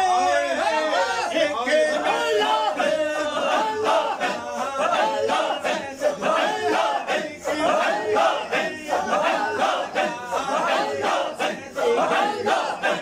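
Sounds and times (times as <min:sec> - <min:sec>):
crowd of men chanting: 0:00.0 - 0:13.0.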